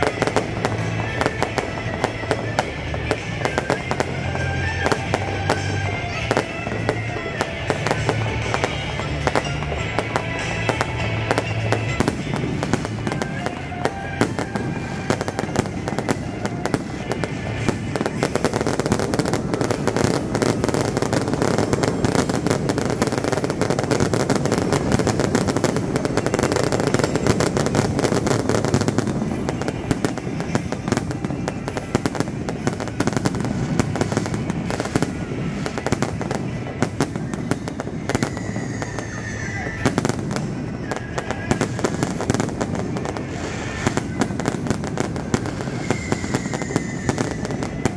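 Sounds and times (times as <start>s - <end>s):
fireworks crackling and popping: 0.0s - 47.9s.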